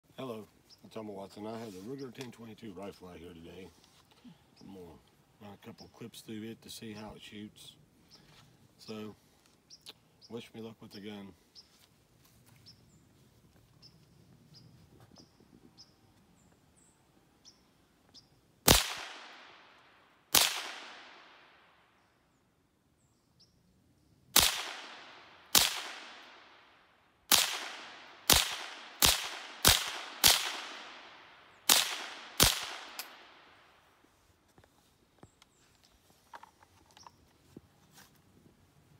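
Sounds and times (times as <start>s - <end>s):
rifle shots echoing: 18.6s - 21.8s, 24.4s - 33.8s.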